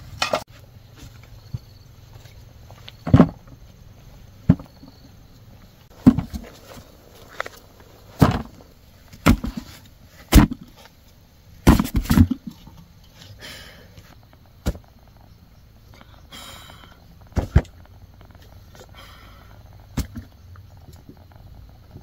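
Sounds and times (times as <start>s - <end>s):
husks rustling: 0.6s - 11.2s.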